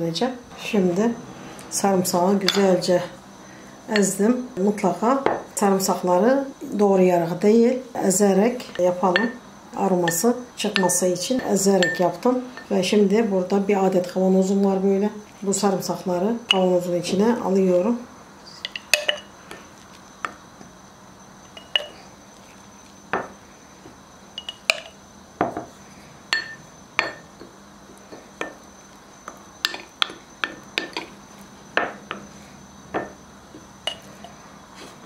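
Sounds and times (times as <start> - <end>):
spoon tapping ceramic bowl: 9.1 - 9.4, 11.8 - 12.7, 24.4 - 25.0, 26.3 - 27.2
spoon clinking glass jar: 11.8 - 12.7, 18.6 - 19.3, 24.4 - 25.0, 26.3 - 27.2, 33.9 - 34.2.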